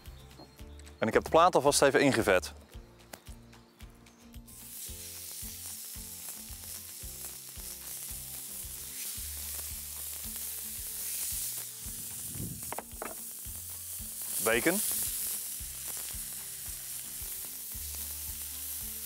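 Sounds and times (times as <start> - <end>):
burger patties sizzling on griddle: 4.5 - 19.0.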